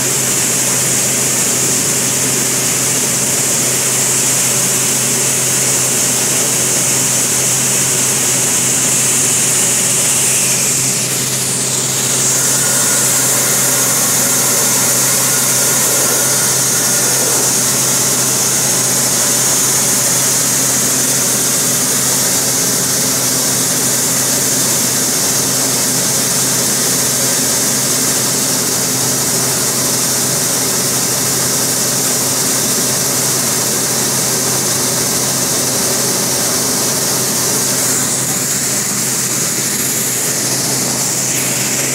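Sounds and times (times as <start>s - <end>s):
fans droning with high hiss: 0.0s - 41.9s.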